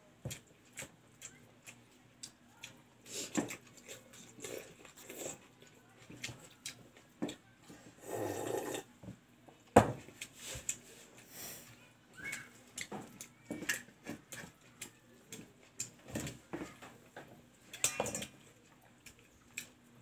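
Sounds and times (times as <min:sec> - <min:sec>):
wet chewing clicks: 0:00.3 - 0:07.4
slurp from steel bowl: 0:08.0 - 0:08.9.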